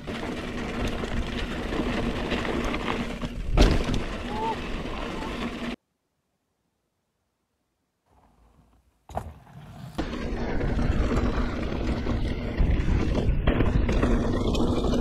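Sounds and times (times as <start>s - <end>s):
bike tyres rushing on dirt trail: 0.0s - 5.8s, 8.1s - 15.0s
wind rumble on microphone: 10.0s - 15.0s.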